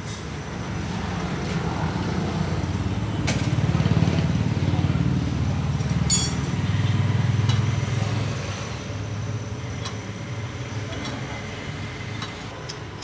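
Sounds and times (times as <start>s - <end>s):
vehicle engine rumbling: 0.0s - 12.0s
sharp metallic clink: 6.1s - 6.6s.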